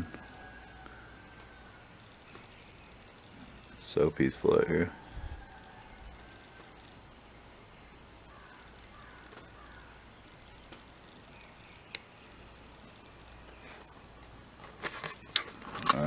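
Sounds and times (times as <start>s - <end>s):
faint bird calls: 0.0s - 14.2s
insects chirping: 0.0s - 16.0s
low outdoor hum: 0.0s - 16.0s
sharp click: 11.8s - 12.1s.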